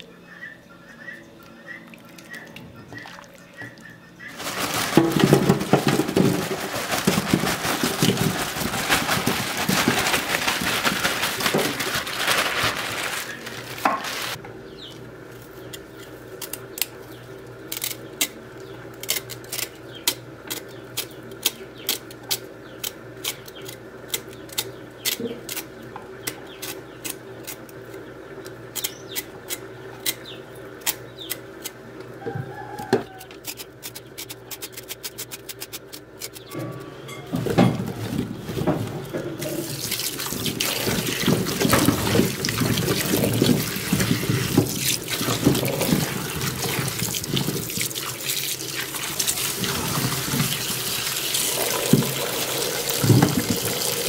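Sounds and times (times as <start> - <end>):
knife cutting and scraping vegetables: 4.3 - 14.4, 19.0 - 28.1, 28.7 - 31.8, 32.8 - 36.9
tap water running into sink: 39.4 - 54.0.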